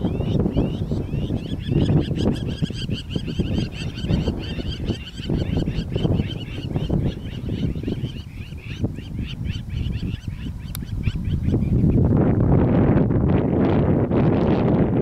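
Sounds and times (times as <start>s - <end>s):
wild dogs twittering: 0.2s - 11.7s.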